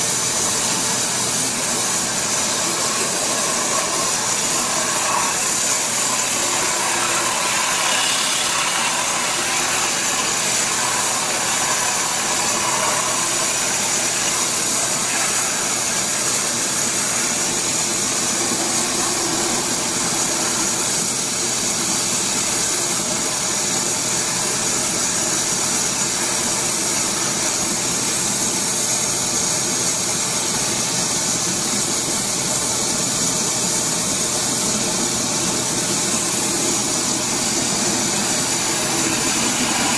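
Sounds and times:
drilling rig engine under load: 0.0 - 22.7, 33.6 - 39.9.

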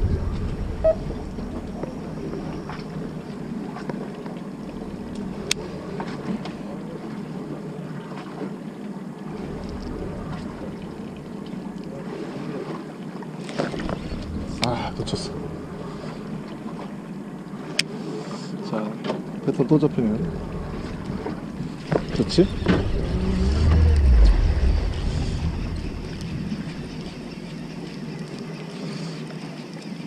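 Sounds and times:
wind buffeting microphone: 0.0 - 7.0, 9.3 - 11.9, 13.6 - 17.6, 19.2 - 28.4
fishing boat engine rumble: 0.0 - 30.0.

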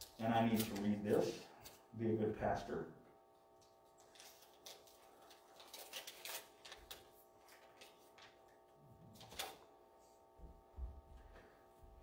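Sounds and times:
paper rustling and crackling: 0.0 - 1.8, 3.9 - 9.7
faint steady hum: 0.0 - 12.0.

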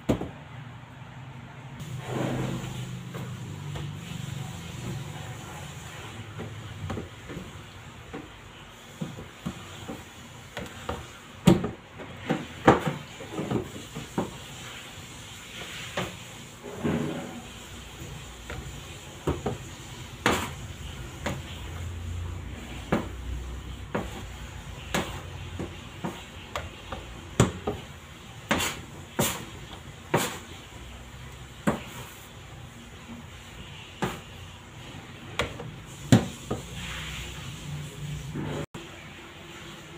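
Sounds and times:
dough thudding on surfaces: 0.0 - 0.4, 6.0 - 14.5, 17.8 - 36.8.

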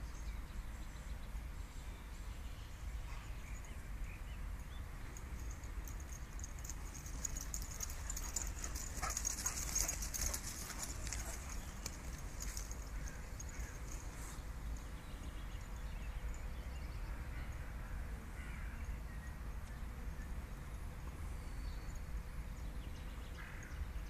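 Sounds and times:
dogs running on grass: 6.0 - 14.4.

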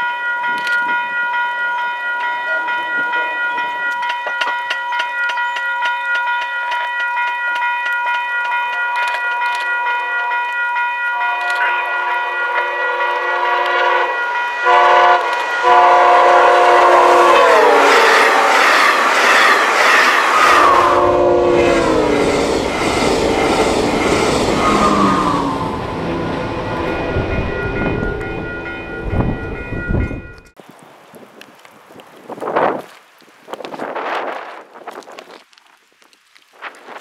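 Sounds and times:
level crossing bell ringing: 0.0 - 12.8, 26.8 - 30.5
train rushing and wheel clatter: 2.5 - 10.5, 11.2 - 30.6
train air horn blasts: 11.2 - 29.3.

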